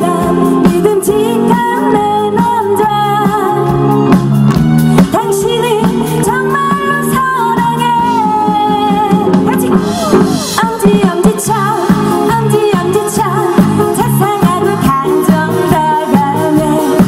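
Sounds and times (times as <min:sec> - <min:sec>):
drum kit beat: 0:00.0 - 0:17.0
electric guitar: 0:00.0 - 0:17.0
woman singing into a microphone: 0:00.0 - 0:17.0.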